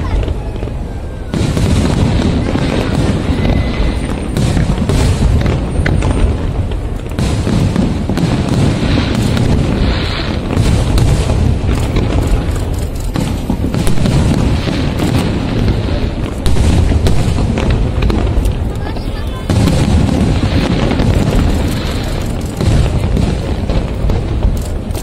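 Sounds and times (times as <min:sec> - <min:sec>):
firework cracks and crackles: 0:00.0 - 0:25.0
fireworks booming: 0:00.0 - 0:25.0.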